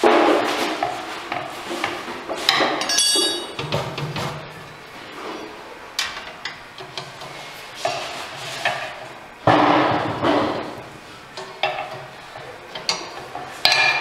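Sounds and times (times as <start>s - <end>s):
metal tools clinking on steel: 2.8s - 3.6s
allen key ringing on floor: 2.9s - 3.5s.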